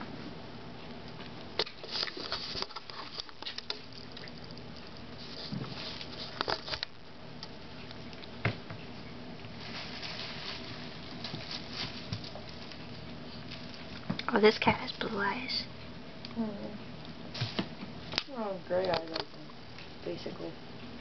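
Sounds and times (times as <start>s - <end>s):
plastic bags crackling: 9.5s - 12.8s.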